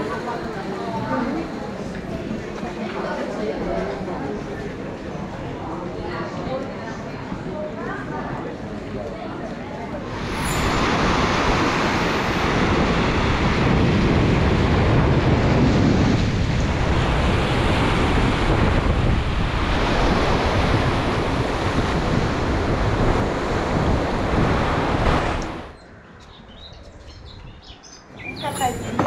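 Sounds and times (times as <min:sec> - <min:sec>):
sea waves washing on shore: 0:10.0 - 0:25.8
wind buffeting microphone: 0:10.0 - 0:25.8, 0:26.4 - 0:29.0.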